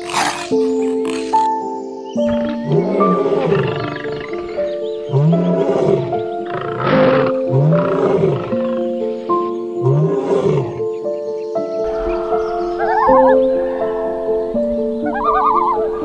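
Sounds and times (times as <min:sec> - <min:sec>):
large animal low calls: 0:00.0 - 0:01.5, 0:02.3 - 0:08.9
music of held notes: 0:00.0 - 0:16.0.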